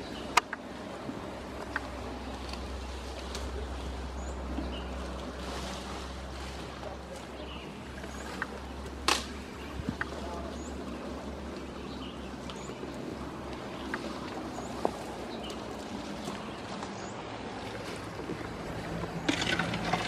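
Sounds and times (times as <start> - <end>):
outdoor background noise: 0.0 - 20.0
elephant rustling grass: 2.1 - 8.4
sharp snap: 9.0 - 9.4.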